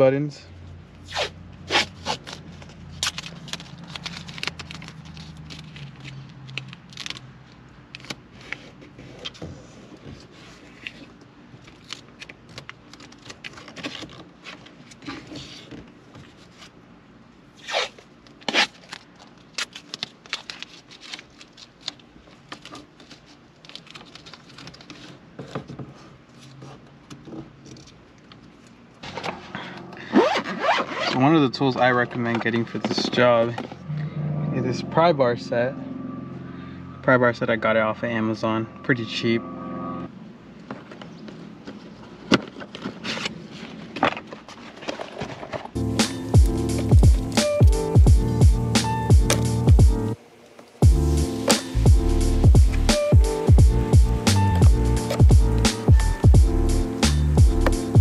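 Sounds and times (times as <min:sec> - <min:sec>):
tape scraping and rustling: 0:01.0 - 0:16.8, 0:17.5 - 0:33.8, 0:40.6 - 0:48.0, 0:54.3 - 0:56.2.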